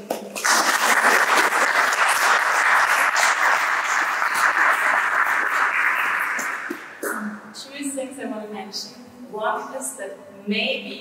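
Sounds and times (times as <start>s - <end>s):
audience applause: 0.4s - 7.1s.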